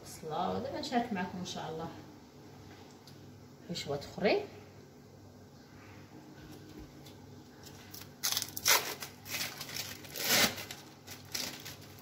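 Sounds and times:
wrapping crinkling and rustling: 6.6s - 12.0s.

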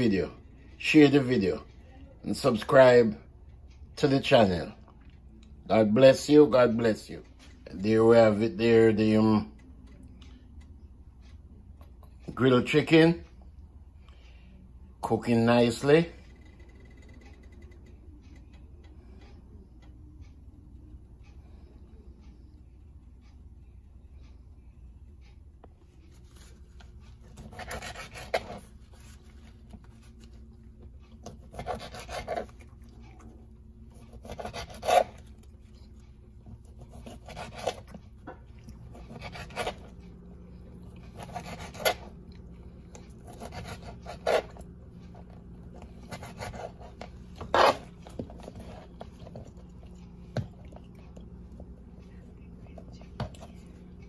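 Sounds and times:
knife sawing through chicken: 27.2s - 29.2s, 31.2s - 32.7s, 33.9s - 35.4s, 36.6s - 37.9s, 38.9s - 40.0s, 41.0s - 42.2s, 43.1s - 44.7s, 45.9s - 48.0s.

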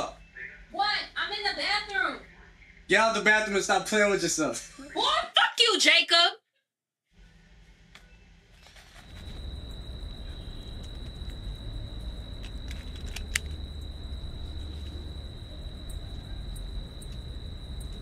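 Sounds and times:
low rumble: 9.1s - 18.0s.

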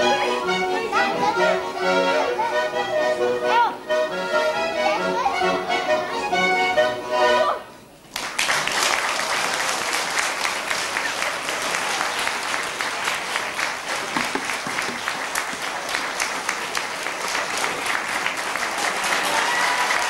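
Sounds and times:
accordion tune: 0.0s - 7.8s
audience applause: 8.1s - 20.0s.

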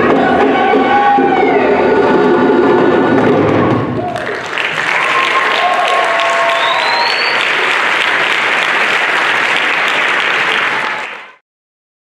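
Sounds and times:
people cheering: 2.8s - 11.4s
audience applauding: 3.1s - 11.4s
rising whistle: 4.9s - 7.5s.

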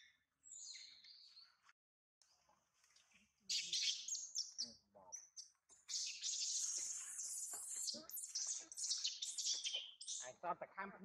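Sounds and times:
high-pitched chirping calls: 0.0s - 1.5s, 3.5s - 10.4s.

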